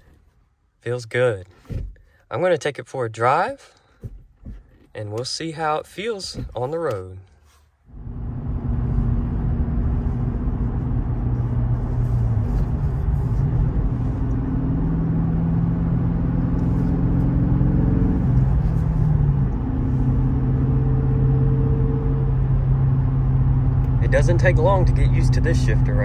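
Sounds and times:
road noise: 0:07.7 - 0:26.0
car engine: 0:07.8 - 0:26.0.

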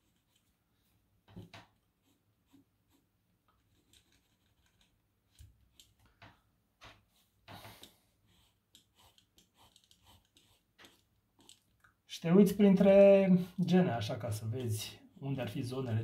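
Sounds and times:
pencil scratching on paper: 0:00.0 - 0:00.6, 0:01.3 - 0:05.9, 0:06.9 - 0:11.7.

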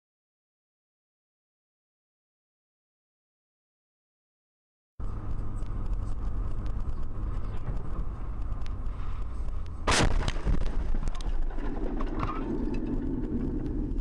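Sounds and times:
car road and engine hum: 0:05.0 - 0:14.0
windshield cracking: 0:09.9 - 0:13.7.

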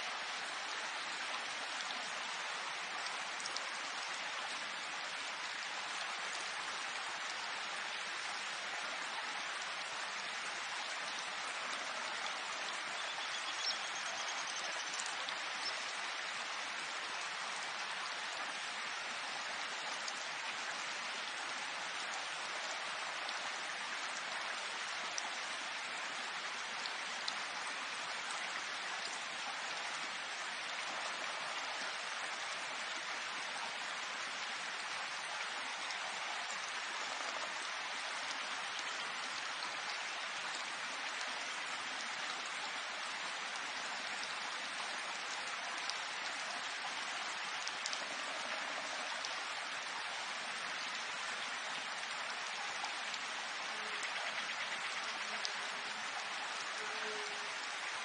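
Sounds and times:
steady rain hiss: 0:00.0 - 0:58.0.

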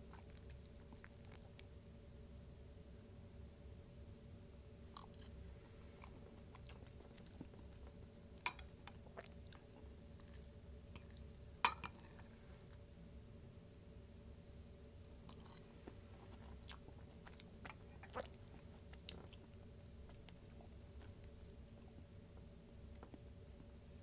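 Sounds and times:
wet chewing sounds: 0:00.1 - 0:01.7, 0:06.0 - 0:08.0, 0:15.2 - 0:23.3.

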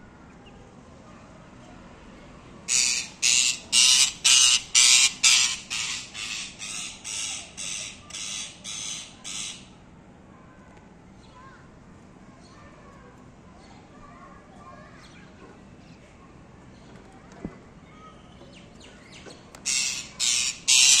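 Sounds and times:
parrot squawking: 0:02.7 - 0:09.7, 0:19.6 - 0:21.0.

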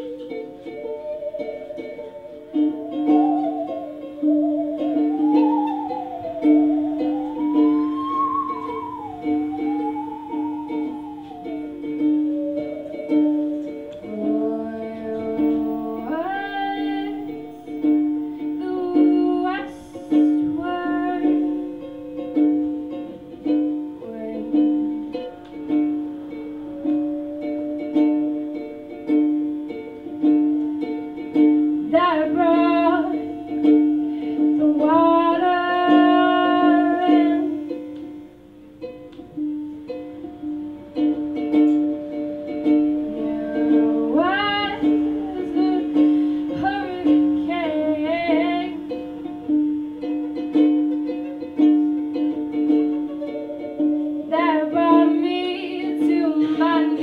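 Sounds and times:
woman singing: 0:00.0 - 0:17.7, 0:18.5 - 0:22.2, 0:23.8 - 0:29.0, 0:31.8 - 0:37.9, 0:40.4 - 0:49.8, 0:53.3 - 0:57.0
ukulele strumming: 0:00.0 - 0:57.0.

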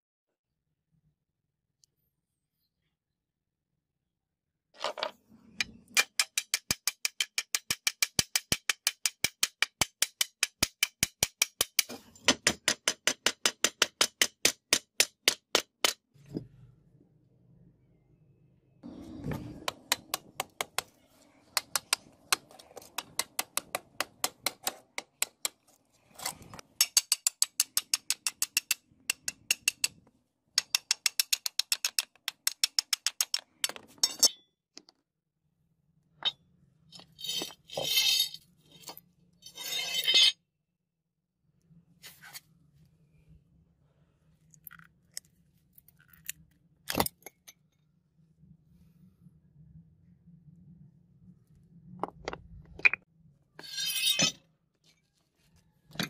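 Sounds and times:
hammer striking steel chisel: 0:05.9 - 0:16.0, 0:19.3 - 0:25.6, 0:26.8 - 0:30.0, 0:30.6 - 0:34.3.

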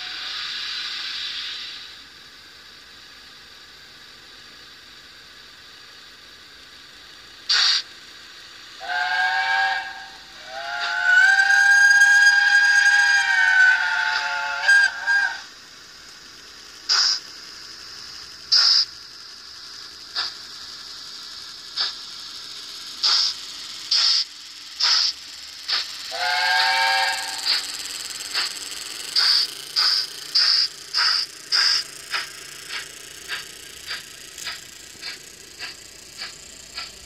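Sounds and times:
steam locomotive exhaust chuffs: 0:00.0 - 0:37.0
locomotive whistle blast: 0:08.8 - 0:15.5, 0:26.1 - 0:27.6.

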